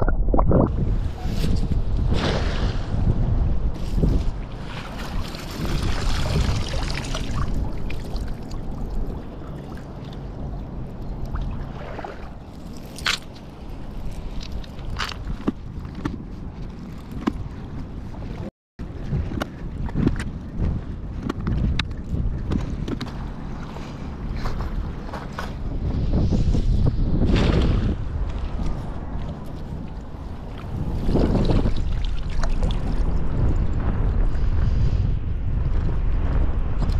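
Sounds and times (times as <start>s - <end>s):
wind buffeting microphone: 0.0s - 36.9s
cast net splashing on water: 4.6s - 8.3s.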